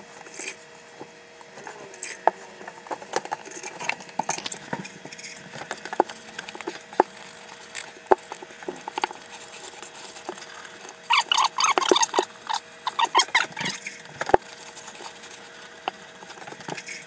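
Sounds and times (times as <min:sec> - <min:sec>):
sponge squeaking on tile: 0:09.1 - 0:17.0.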